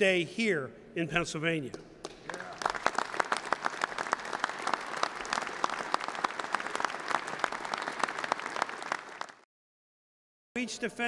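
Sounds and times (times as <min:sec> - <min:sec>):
group of people applauding: 0:02.0 - 0:09.5.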